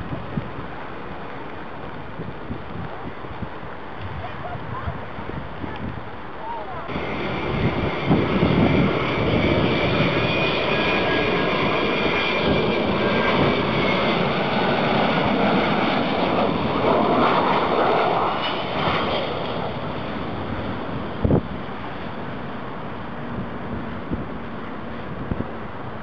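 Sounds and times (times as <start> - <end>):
jet engines passing overhead: 5.8 - 26.0
high whine falling in pitch: 6.9 - 14.6.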